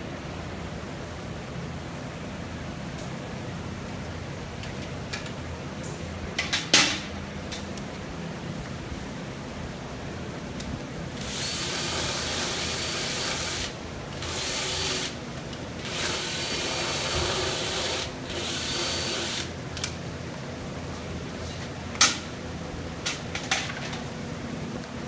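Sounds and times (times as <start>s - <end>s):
motorized dental tool grinding teeth: 11.2s - 15.2s, 15.8s - 19.5s.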